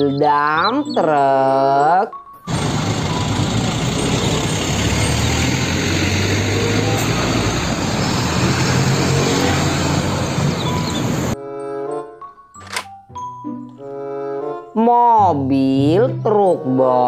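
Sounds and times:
road noise: 0:02.4 - 0:11.4
diesel truck engine hum: 0:02.5 - 0:11.4.

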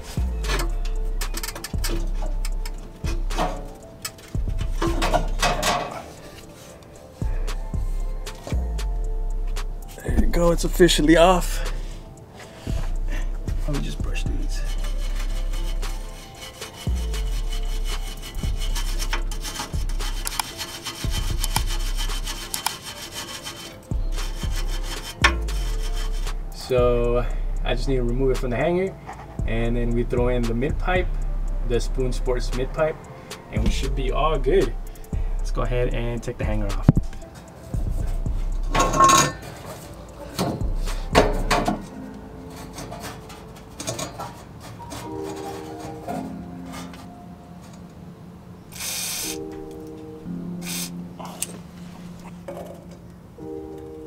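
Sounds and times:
wire brush scrubbing metal: 0:00.0 - 0:07.2, 0:13.1 - 0:27.1, 0:34.9 - 0:47.2, 0:48.7 - 0:49.5, 0:50.6 - 0:51.0
metal clanking and scraping: 0:00.0 - 0:07.3, 0:09.8 - 0:26.7, 0:36.0 - 0:47.9, 0:50.6 - 0:53.1.

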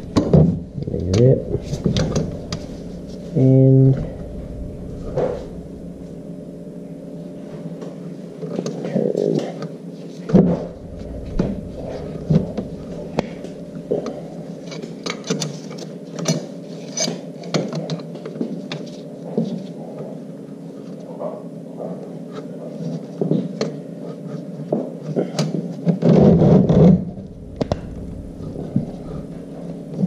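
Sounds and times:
steady low hum: 0:00.0 - 0:16.1, 0:26.6 - 0:30.0.

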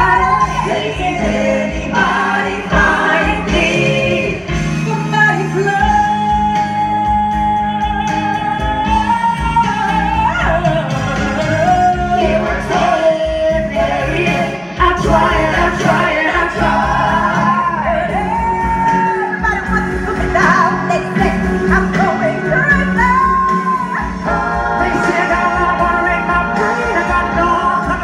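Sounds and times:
lead singer singing: 0:00.0 - 0:28.0
live band music: 0:00.0 - 0:28.0.

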